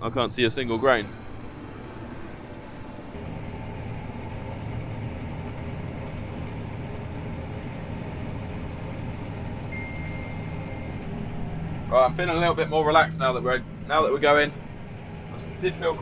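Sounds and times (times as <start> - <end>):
combine harvester drone: 0.0 - 16.0
thin high tone: 9.7 - 11.1.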